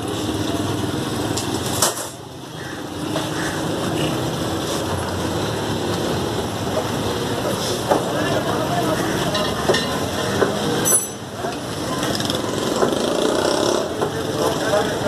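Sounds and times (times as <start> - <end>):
butcher shop background noise: 0.0 - 15.0.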